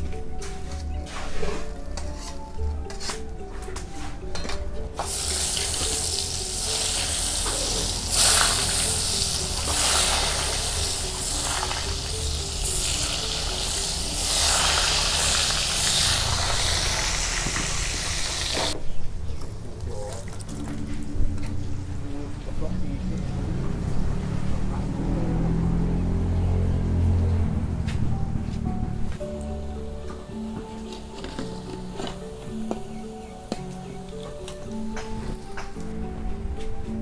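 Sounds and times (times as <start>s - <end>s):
quiet background music: 0.0s - 37.0s
oil sizzling in a wok: 5.0s - 18.8s.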